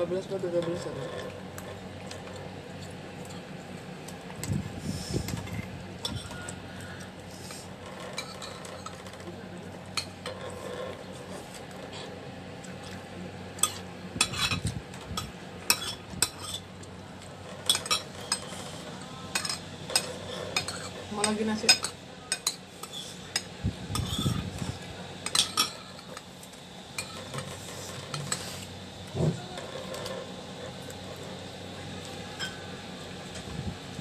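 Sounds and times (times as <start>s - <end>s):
metal spoon scraping a plate: 7.4s - 9.2s, 10.0s - 12.1s, 13.6s - 16.7s, 17.5s - 26.2s, 27.0s - 28.7s.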